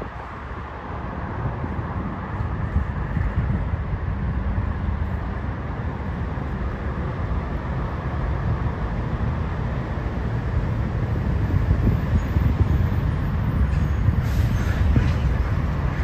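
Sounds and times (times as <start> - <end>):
road traffic noise: 0.0 - 16.0
wind rumbling on microphone: 0.0 - 16.0.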